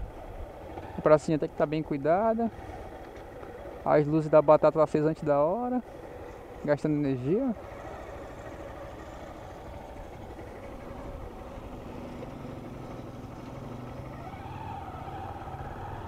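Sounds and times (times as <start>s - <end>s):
motorcycle engine: 0.0s - 16.0s
wind and road noise: 0.0s - 16.0s.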